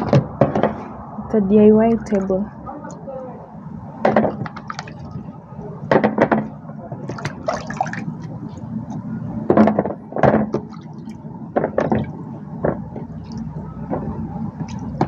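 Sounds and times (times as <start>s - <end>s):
low background hum: 0.0s - 15.0s
hands splashing in water tub: 7.1s - 8.1s.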